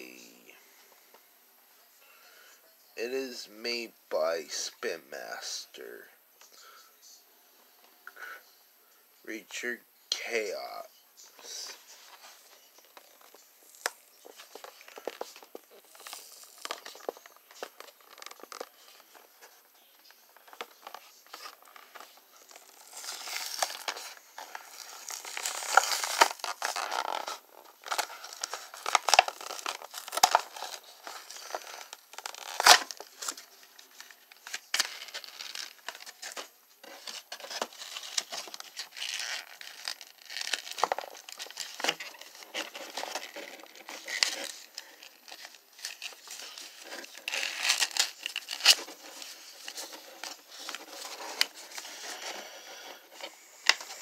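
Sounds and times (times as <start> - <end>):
packaging crinkling and tearing: 11.4 - 54.0.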